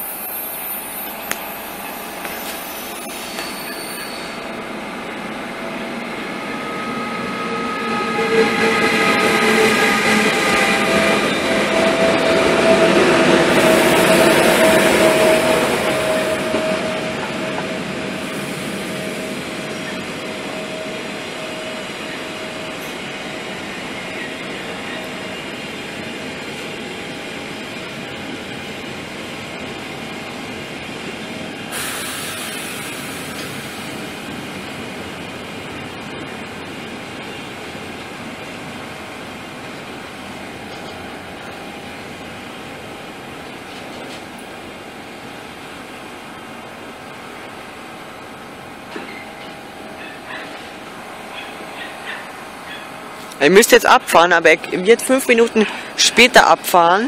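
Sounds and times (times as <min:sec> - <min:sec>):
hiss: 0:18.2 - 0:19.3, 0:31.7 - 0:34.0
train wagons rolling over rails: 0:48.6 - 0:53.4.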